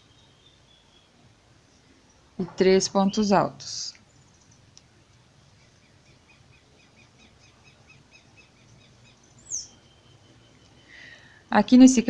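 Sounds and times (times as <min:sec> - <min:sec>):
faint high chirps: 0:05.5 - 0:11.4.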